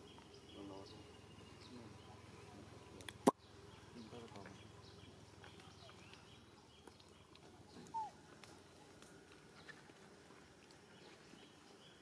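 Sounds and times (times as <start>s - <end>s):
faint outdoor background: 0.0s - 12.0s.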